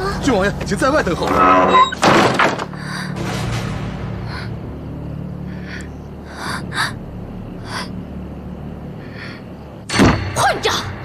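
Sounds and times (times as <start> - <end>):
low steady hum: 2.8 - 11.0.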